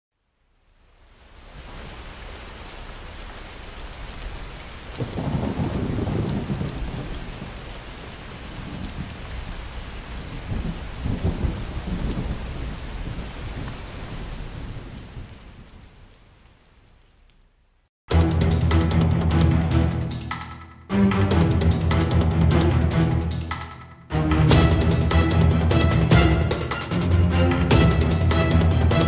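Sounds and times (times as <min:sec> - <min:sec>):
steady rain: 0:00.1 - 0:19.6, 0:24.1 - 0:29.0
deep rolls of thunder: 0:05.0 - 0:07.8, 0:08.4 - 0:15.7.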